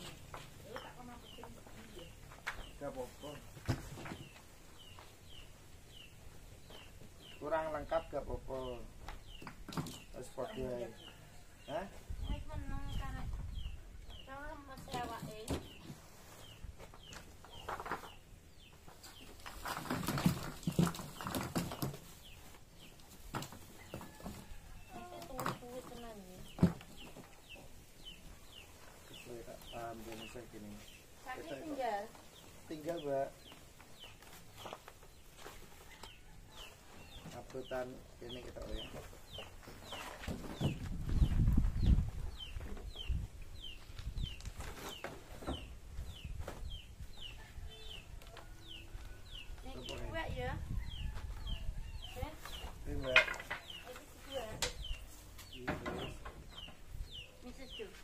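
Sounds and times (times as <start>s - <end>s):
bird chirping: 0.0s - 58.0s
bags rustling and knocking: 19.2s - 24.4s
chick peeping: 35.4s - 58.0s.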